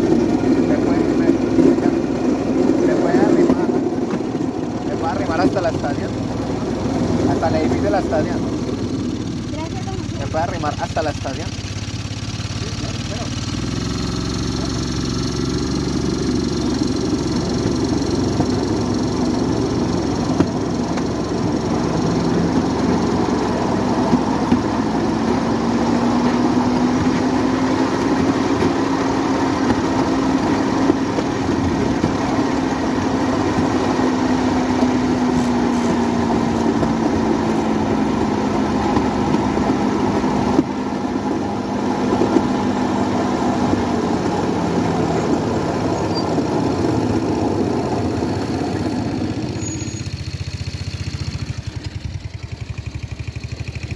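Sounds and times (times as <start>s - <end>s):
motorcycle engine running: 0.0s - 53.9s.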